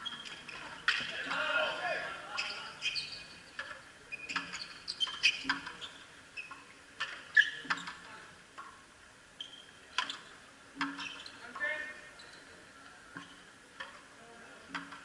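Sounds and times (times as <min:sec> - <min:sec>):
sneakers squeaking on court: 0:00.0 - 0:01.2, 0:02.3 - 0:08.0, 0:09.4 - 0:12.6.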